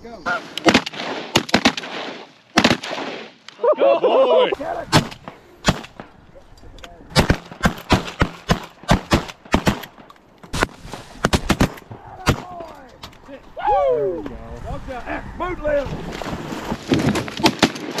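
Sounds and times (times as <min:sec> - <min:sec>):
shotguns firing: 0:00.4 - 0:03.6, 0:04.9 - 0:06.2, 0:07.1 - 0:12.6, 0:16.9 - 0:18.0.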